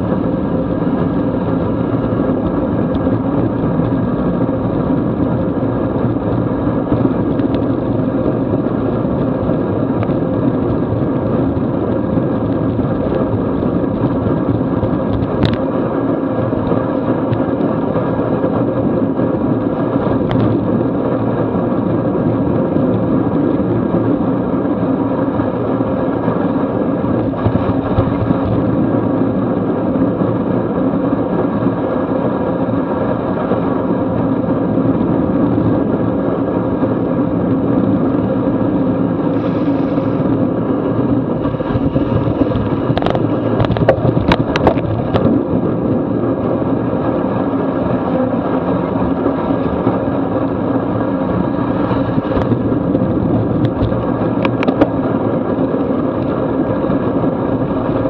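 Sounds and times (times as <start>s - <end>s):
wind rushing over microphone: 0.0s - 58.0s
tyres hissing on wet pavement: 39.3s - 40.4s.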